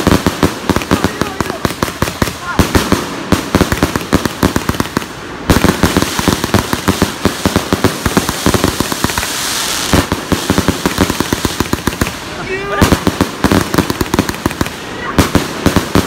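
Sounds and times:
firework cake firing rapidly: 0.0 - 16.0.

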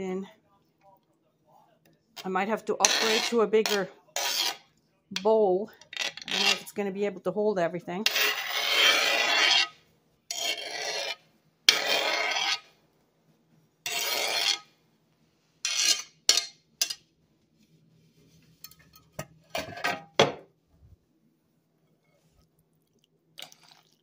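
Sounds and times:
knife scraping glass board: 2.8 - 4.7, 6.0 - 6.7, 8.1 - 12.7, 13.8 - 14.7, 15.6 - 17.0.

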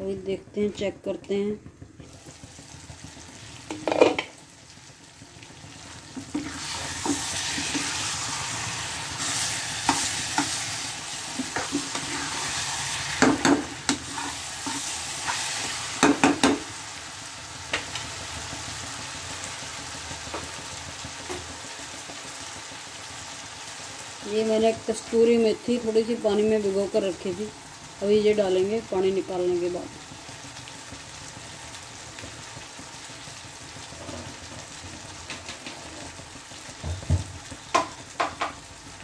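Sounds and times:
curry sizzling in a pan: 0.0 - 39.0
metal ladle scraping a pan: 6.3 - 8.4, 9.2 - 15.7.

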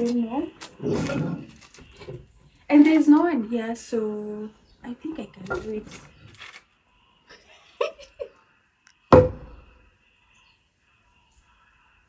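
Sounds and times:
log drum struck with mallet: 9.1 - 9.7.

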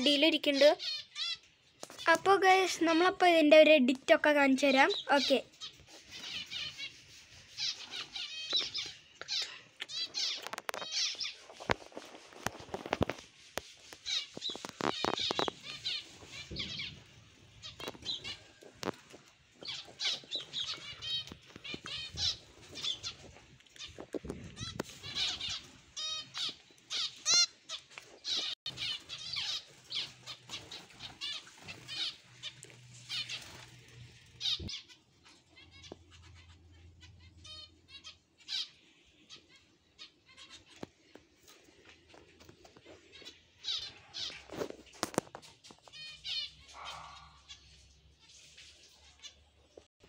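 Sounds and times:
finches chirping: 4.2 - 11.7, 13.9 - 18.9, 19.6 - 40.9.

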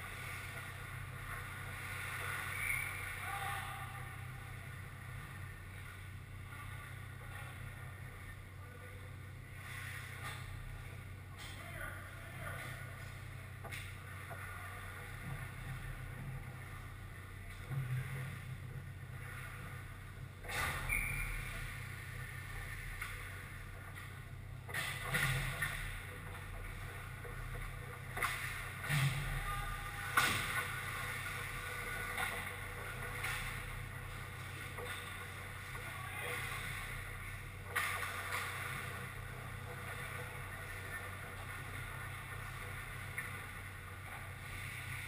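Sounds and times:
arena hum: 0.0 - 45.0
skates and sticks on ice: 22.6 - 45.0.

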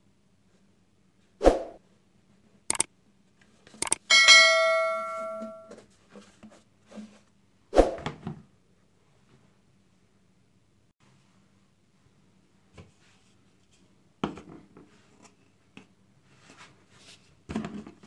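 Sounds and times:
short clicks: 3.8 - 4.1
bell-like ding: 4.1 - 5.8.

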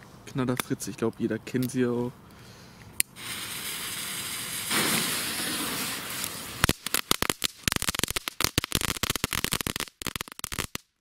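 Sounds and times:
firework fuse hissing: 3.1 - 10.8
firework crackling pops: 3.1 - 11.0.

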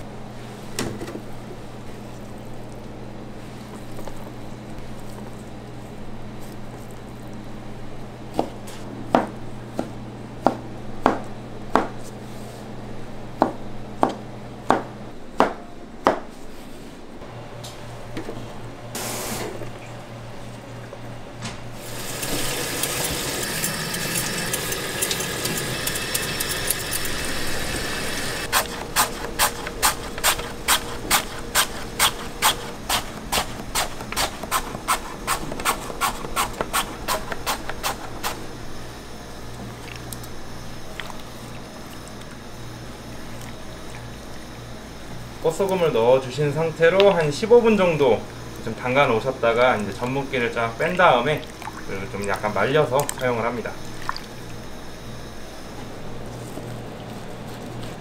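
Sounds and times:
tap running water: 21.8 - 28.5.

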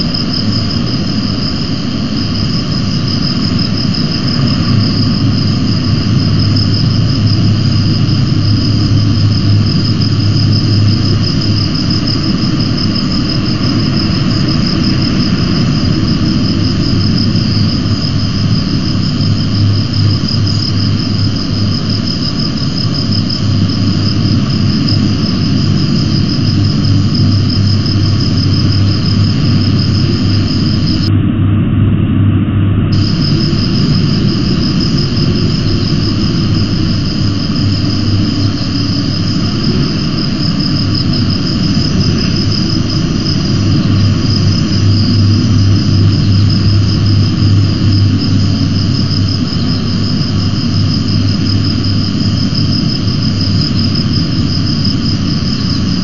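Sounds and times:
high-pitched insect trill: 0.0 - 31.1, 32.9 - 56.0
wind rumble on microphone: 0.0 - 56.0.

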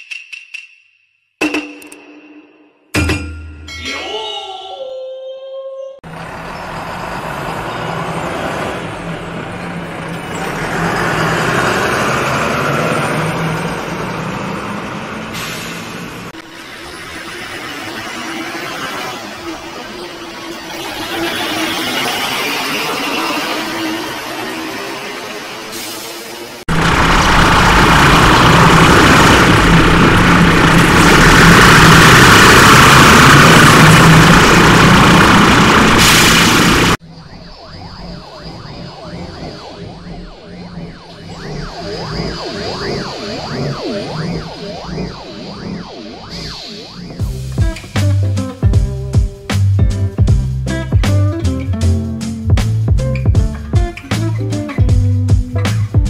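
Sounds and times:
bus driving past: 6.1 - 37.2
distorted harsh noisy drone: 8.8 - 49.1
low hum: 26.7 - 49.4.

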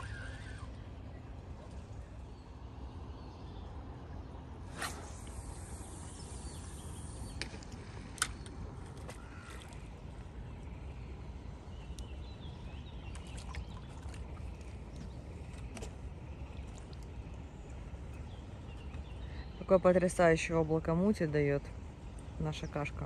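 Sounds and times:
fishing rod whoosh: 4.6 - 6.2
line hissing off reel: 4.7 - 7.4.

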